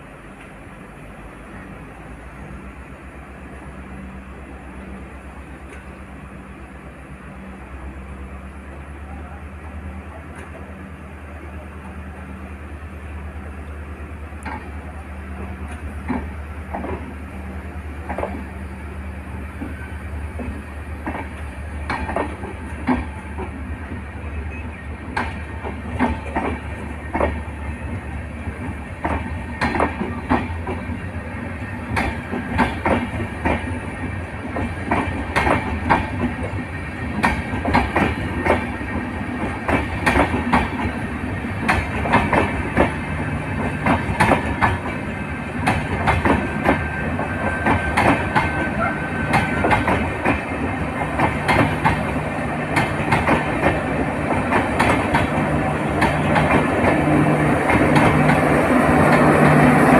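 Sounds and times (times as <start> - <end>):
train rushing past: 0.0 - 59.9
train wheels clacking over rail joints: 15.4 - 17.1, 19.5 - 23.7, 25.1 - 27.5, 28.6 - 31.0, 31.7 - 59.9.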